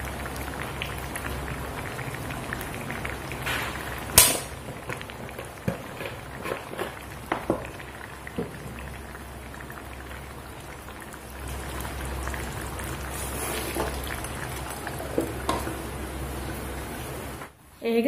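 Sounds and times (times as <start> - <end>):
curry bubbling in a pot: 0.0 - 17.5.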